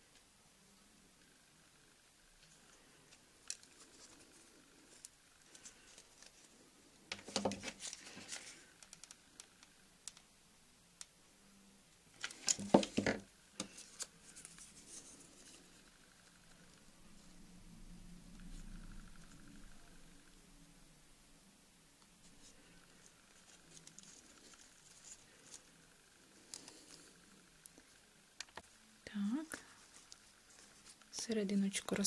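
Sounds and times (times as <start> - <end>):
hands handling craft materials: 2.4 - 10.2, 12.2 - 15.8, 22.3 - 25.8, 29.6 - 32.0
clattering on wooden table: 12.5 - 13.2.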